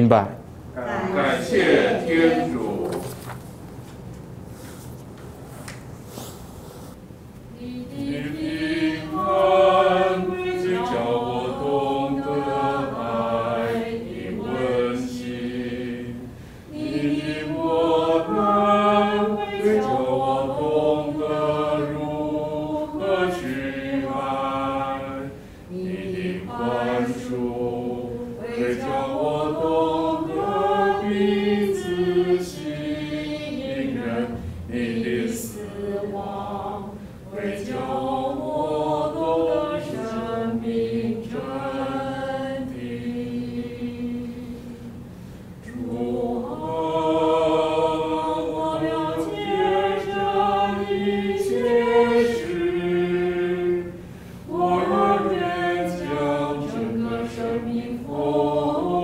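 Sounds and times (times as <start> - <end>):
congregation singing a hymn: 0.7 - 3.4, 7.5 - 59.0.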